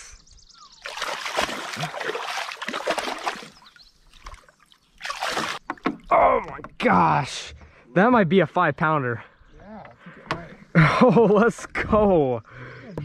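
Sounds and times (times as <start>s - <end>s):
fish thrashing and splashing: 0.8s - 6.1s.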